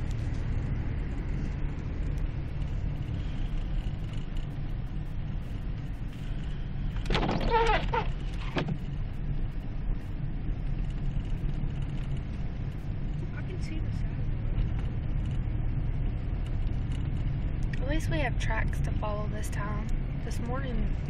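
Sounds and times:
car engine running: 0:00.0 - 0:21.0
tyre and road rumble: 0:00.0 - 0:21.0
windshield wipers squeaking: 0:06.9 - 0:09.0.

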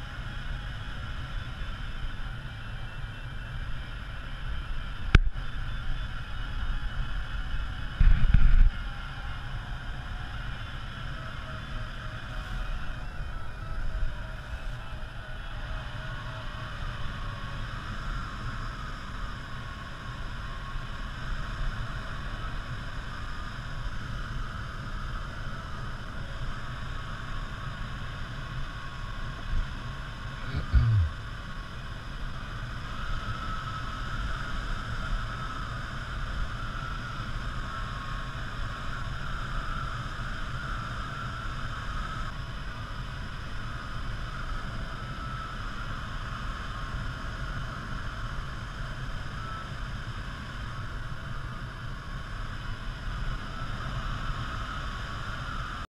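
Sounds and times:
glider cockpit rumble: 0:28.8 - 0:32.0.

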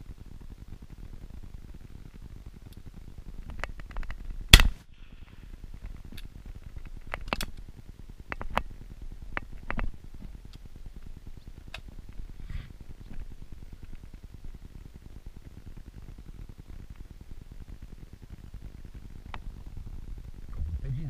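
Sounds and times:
gun handling clicks: 0:03.5 - 0:04.8
shotgun shot: 0:04.5 - 0:04.8.

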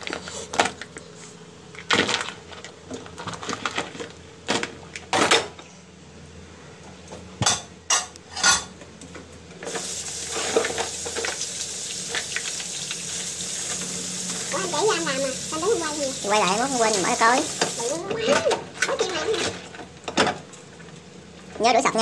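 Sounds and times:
tap water running into basin: 0:09.6 - 0:18.2.

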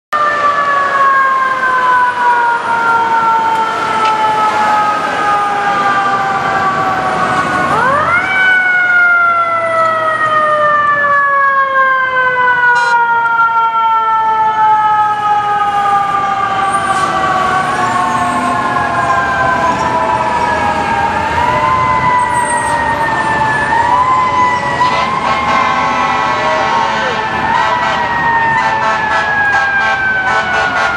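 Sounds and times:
mechanical fire truck siren: 0:00.2 - 0:30.9.

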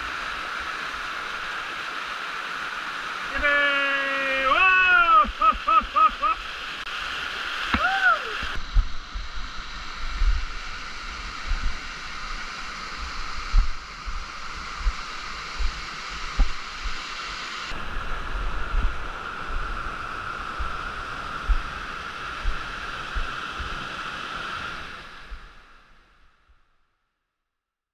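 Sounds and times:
mountain stream and waterfall rushing: 0:00.0 - 0:26.2
wind thumps on microphone: 0:07.7 - 0:11.8, 0:12.9 - 0:17.1, 0:17.7 - 0:19.8, 0:20.5 - 0:23.8.

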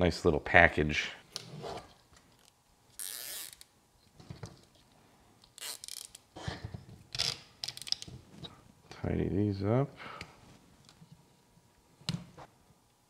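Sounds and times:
zip ties ratcheting: 0:02.4 - 0:03.7, 0:05.4 - 0:06.3, 0:07.1 - 0:08.1.

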